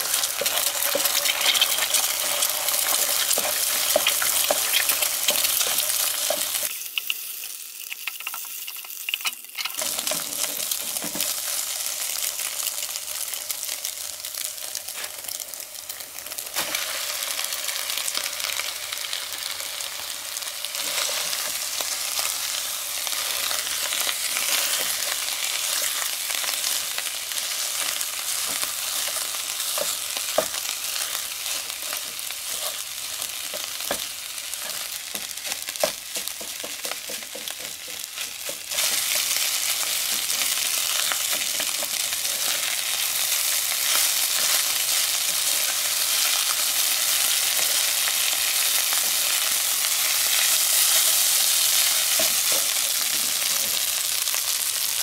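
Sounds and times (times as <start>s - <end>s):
spatula scraping pan: 0.0s - 6.7s
food sizzling in frying pan: 0.0s - 55.0s.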